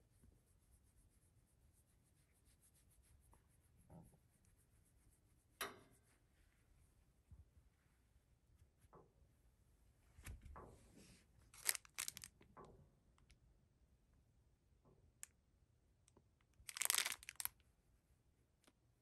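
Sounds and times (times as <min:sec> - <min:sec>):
soft rustle: 0:00.0 - 0:12.4
plastic wrapper crinkling: 0:11.5 - 0:12.4, 0:16.6 - 0:17.6.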